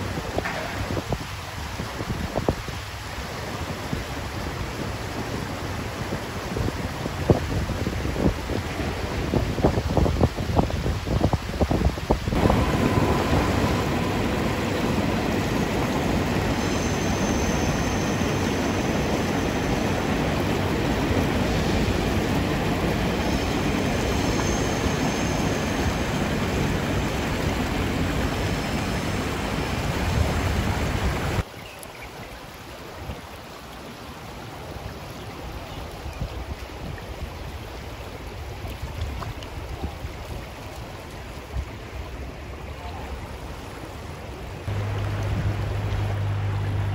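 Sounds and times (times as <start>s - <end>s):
water rushing over rocks: 0.0s - 46.9s
wind buffeting microphone: 5.0s - 31.4s.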